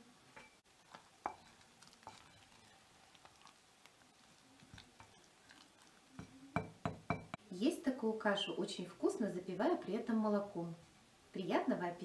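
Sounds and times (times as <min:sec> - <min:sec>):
wooden spoon stirring porridge: 0:00.6 - 0:07.1.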